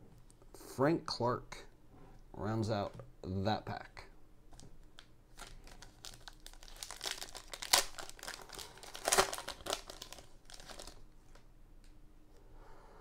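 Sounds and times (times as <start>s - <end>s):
foil wrapper crinkling and tearing: 5.3s - 11.0s.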